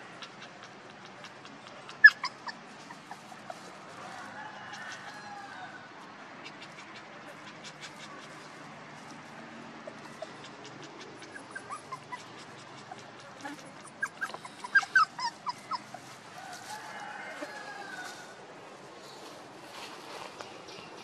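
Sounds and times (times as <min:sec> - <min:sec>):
puppies whimpering: 0:00.0 - 0:04.0, 0:09.8 - 0:16.3.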